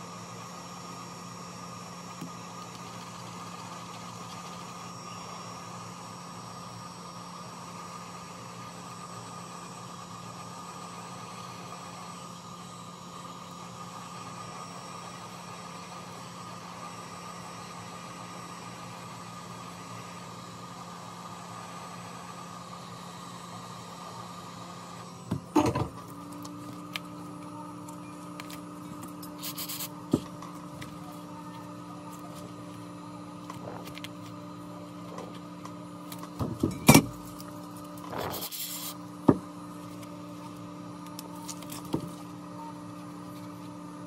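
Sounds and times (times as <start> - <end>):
hot air gun blowing: 29.2 - 30.2, 38.0 - 39.1.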